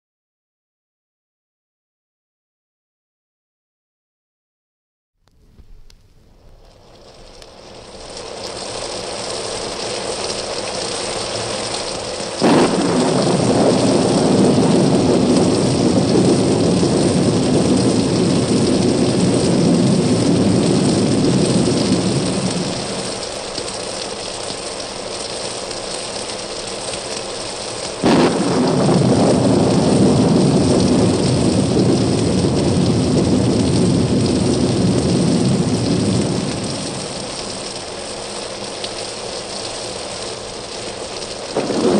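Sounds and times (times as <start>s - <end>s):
heavy rain hissing: 5.4s - 41.9s
thunderclap rumbling: 11.1s - 23.6s, 27.9s - 38.2s, 41.4s - 41.9s.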